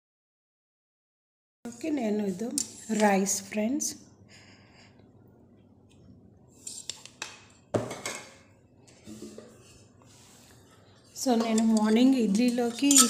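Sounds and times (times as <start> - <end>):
spoon scraping and clinking plate: 11.3 - 13.0.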